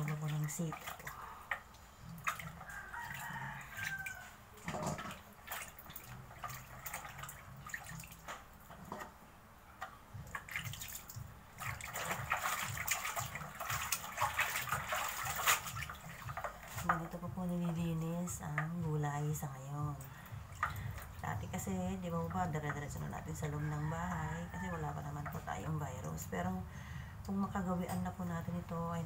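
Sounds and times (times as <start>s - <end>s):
water splashes and drips: 0.0s - 9.2s, 9.8s - 26.4s
hands sloshing beans in water: 10.3s - 17.3s.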